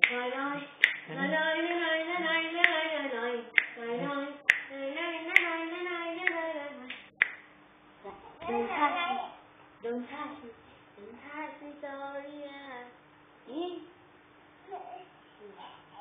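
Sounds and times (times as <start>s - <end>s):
person singing long notes: 0.0s - 6.8s
hand claps: 0.8s - 1.8s, 3.6s - 3.8s, 4.5s - 4.7s, 5.3s - 5.6s, 6.2s - 7.4s.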